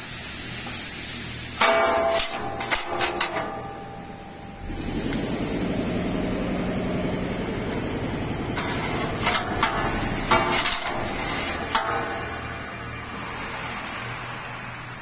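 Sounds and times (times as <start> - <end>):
machine hum: 0.0 - 15.0
metallic clanks and rattles: 1.6 - 5.3, 7.5 - 13.0.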